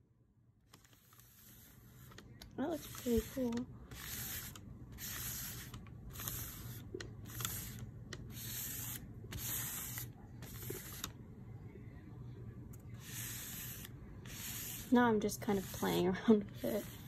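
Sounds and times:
scraper rasping through paint: 13.0s - 17.0s.

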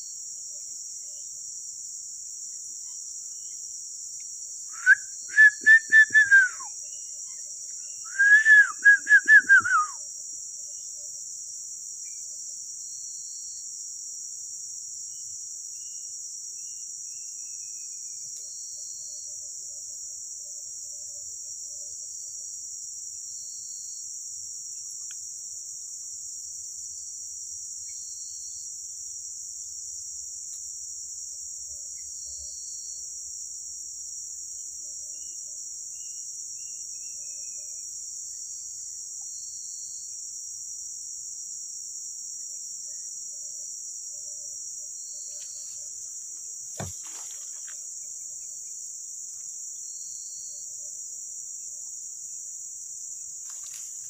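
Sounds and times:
insect chirps: 0.0s - 54.0s
insects droning: 0.0s - 54.0s
sharp knock: 46.8s - 47.2s.

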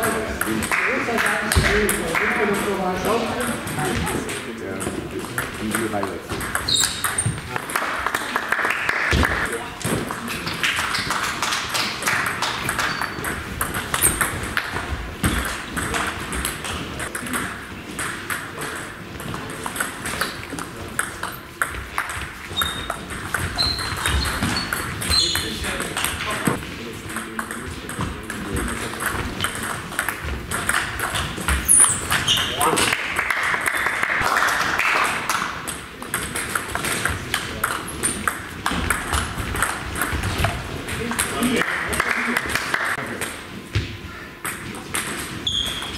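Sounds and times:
table tennis ball ticking: 12.5s - 26.3s, 27.1s - 32.5s
table tennis ball clicking: 28.7s - 32.3s.

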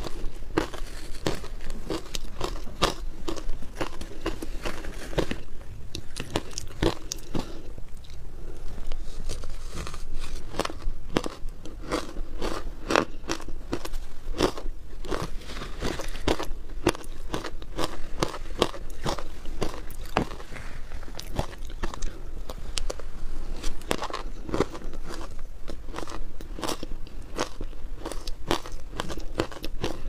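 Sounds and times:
shaved ice crunching in mouth: 0.0s - 7.6s.

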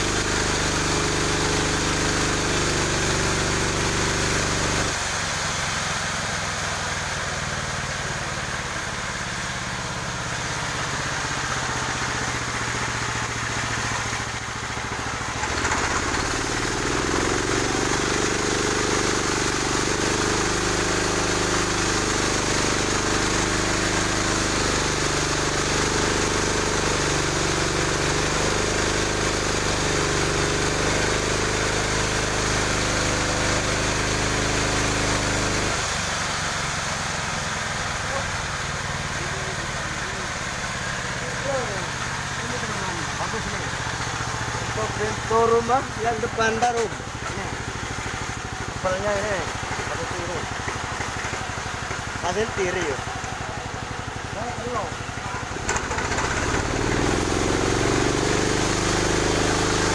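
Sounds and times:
band sawmill running: 0.0s - 59.9s
saw blade cutting a log: 15.2s - 35.9s, 54.2s - 59.9s.

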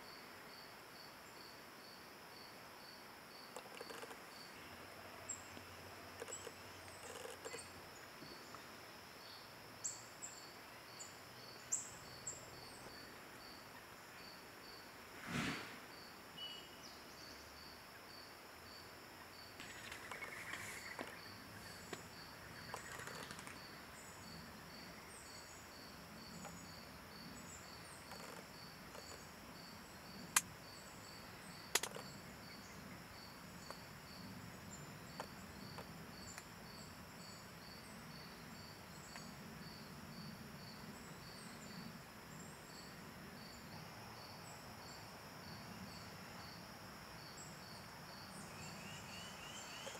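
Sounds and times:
insects chirping: 0.0s - 49.9s
sharp clicks: 31.7s - 32.0s.

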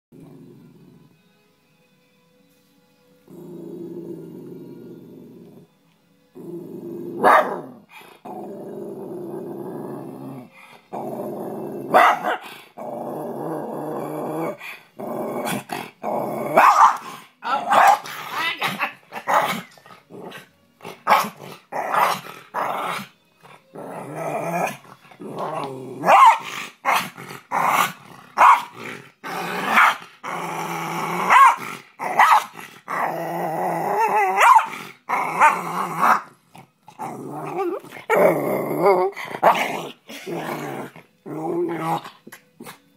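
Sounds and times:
dog growling: 0.2s - 1.2s, 3.2s - 42.9s
dog barking and snarling: 7.0s - 8.3s, 11.6s - 12.9s, 15.3s - 23.1s, 23.7s - 42.9s.

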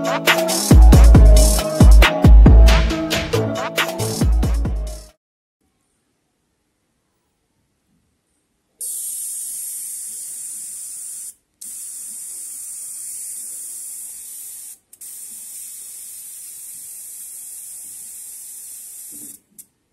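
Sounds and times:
high-voltage arc hissing: 8.8s - 19.5s.

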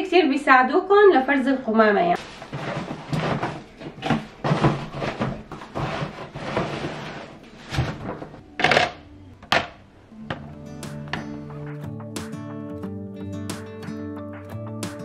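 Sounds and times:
cardboard and plastic rustling: 2.2s - 8.4s.

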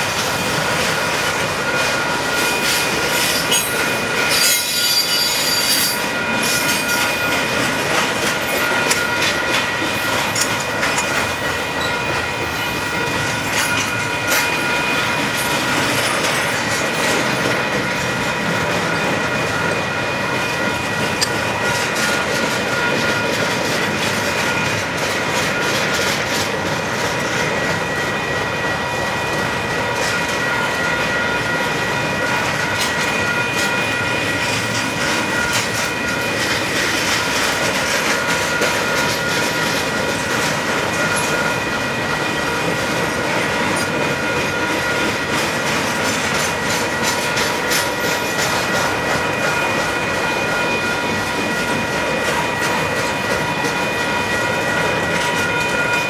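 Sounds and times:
freight train rumbling past: 0.0s - 56.0s
high-pitched wheel squeal: 2.4s - 7.2s.

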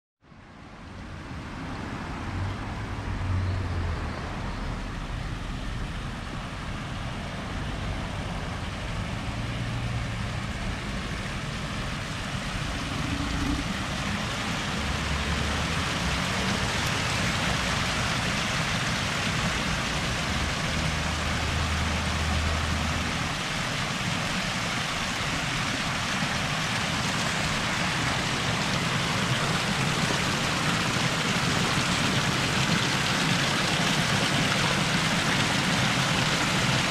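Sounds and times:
fountain water splashing: 4.0s - 36.9s
low rumble: 10.3s - 15.1s.

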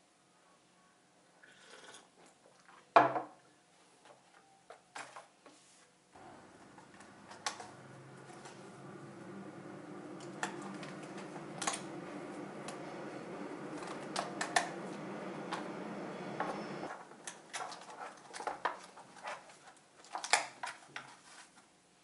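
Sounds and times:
steady low hum: 6.2s - 16.9s.

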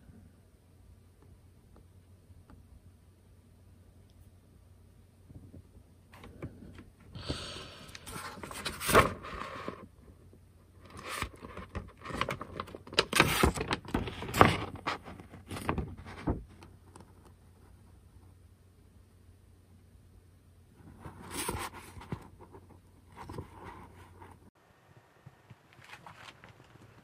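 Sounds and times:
paper rustling and crinkling: 7.9s - 9.9s, 10.8s - 17.3s, 20.8s - 24.4s, 25.7s - 27.0s.

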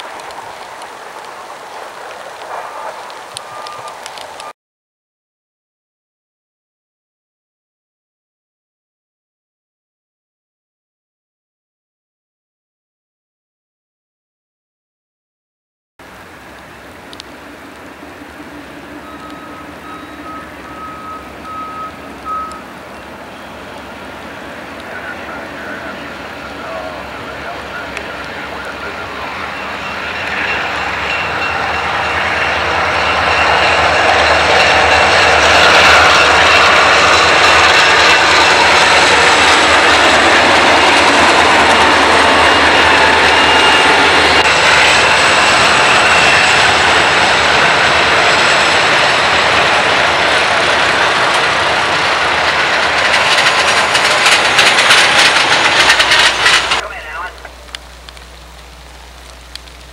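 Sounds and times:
diesel locomotive engines: 0.0s - 4.5s, 16.0s - 59.9s
freight cars rolling by: 0.0s - 4.5s, 16.0s - 59.9s
train wheels clacking: 17.4s - 57.7s.

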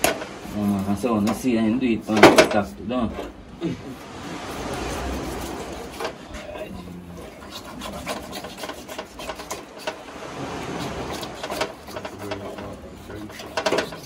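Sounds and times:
knife sawing through flesh: 4.0s - 14.0s.

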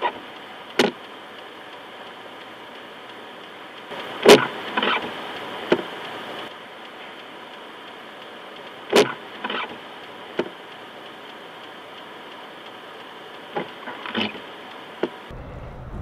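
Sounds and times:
freezing rain hissing on car: 0.0s - 15.3s
sharp ticks on windshield: 0.0s - 15.3s
low rumble: 15.3s - 16.0s.

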